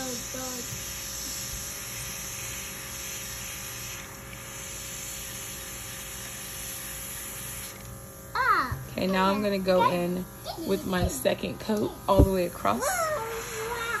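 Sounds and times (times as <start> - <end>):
airbrush spraying hiss: 0.0 - 7.8, 12.3 - 14.0
compressor humming: 0.0 - 14.0.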